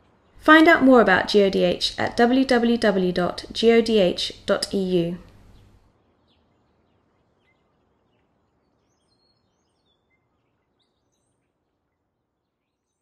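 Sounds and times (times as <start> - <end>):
low hiss: 0.0 - 5.9
faint bird chirps: 5.2 - 13.0.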